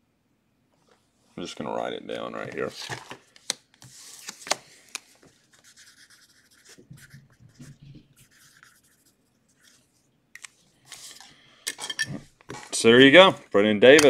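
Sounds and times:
pen scratching on paper: 5.6s - 9.9s.

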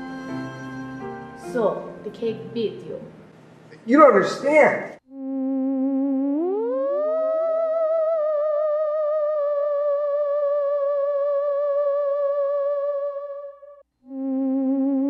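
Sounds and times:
eerie theremin music: 0.0s - 2.0s, 5.6s - 15.0s.

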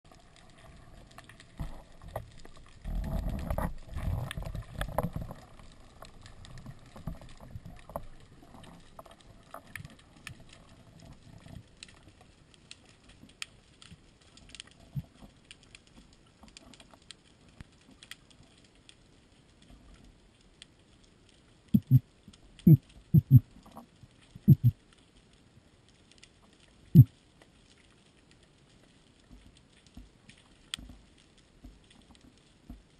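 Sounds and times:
sharp clicks and crackles: 0.1s - 32.9s
water rushing underwater: 22.6s - 23.8s.

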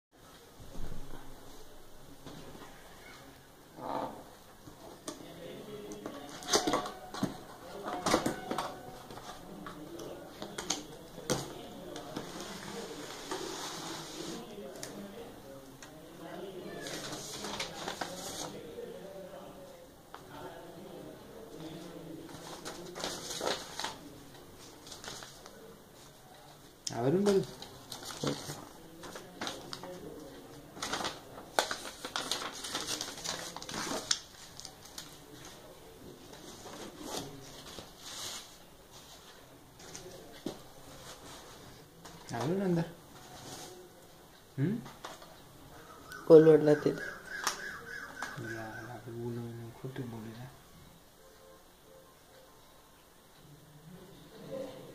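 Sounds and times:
paper and cardboard rustling: 6.0s - 15.0s, 16.7s - 18.6s, 22.2s - 26.2s, 27.2s - 44.0s.

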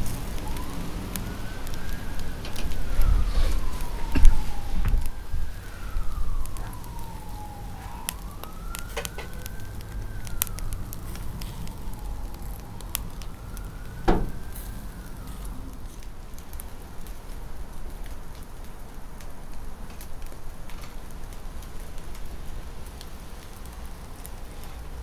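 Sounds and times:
emergency siren wailing: 0.0s - 25.0s
sharp crackles: 0.0s - 25.0s
loud knock: 14.1s - 14.4s.

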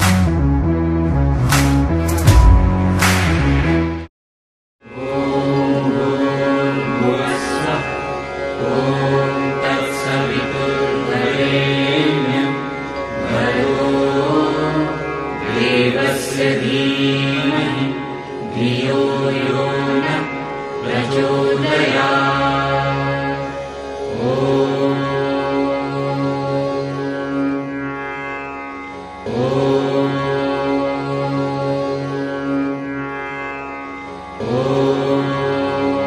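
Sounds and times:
chanted mantras: 4.8s - 27.9s, 29.1s - 32.9s, 34.3s - 36.0s.

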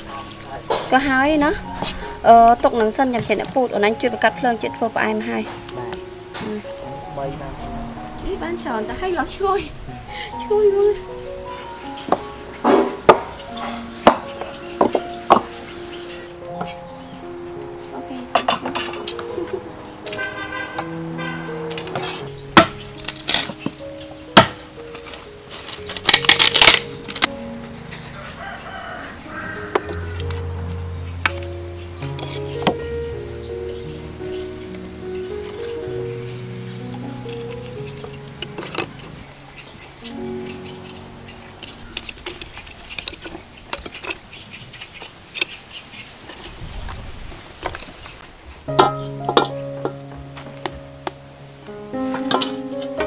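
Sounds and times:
background music: 0.0s - 43.4s, 48.6s - 53.0s
wood sticks clicking on charcoal: 0.1s - 6.7s, 17.6s - 20.9s, 21.7s - 33.0s, 34.7s - 40.2s, 41.6s - 47.0s, 52.1s - 53.0s
knife chopping wood: 22.6s - 23.6s, 24.4s - 24.6s.

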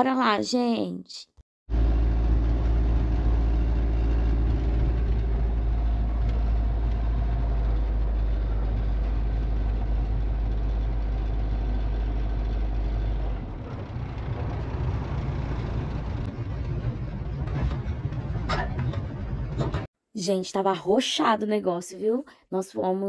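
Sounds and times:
hum: 1.7s - 19.9s
truck engine and road rumble: 1.7s - 19.9s.

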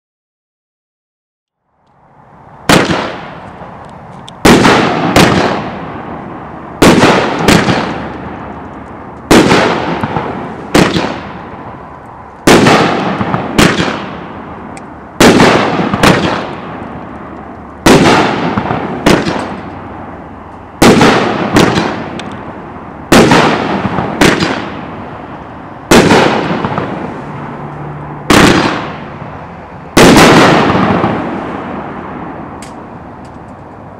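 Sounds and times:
firework bangs: 2.6s - 17.2s, 17.8s - 29.2s, 29.9s - 33.2s.

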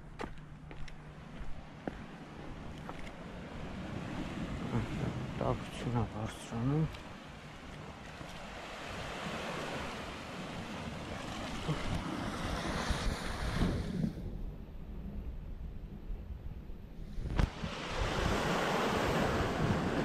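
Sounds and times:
low wind rumble on microphone: 0.0s - 20.0s
sea surf rushing on shore: 1.7s - 14.1s, 17.2s - 20.0s.

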